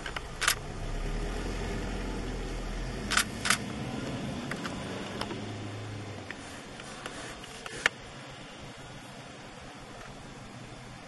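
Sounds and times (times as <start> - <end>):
sharp clicks: 0.0 - 0.6, 3.1 - 3.7
vehicle engine idling: 0.0 - 11.0.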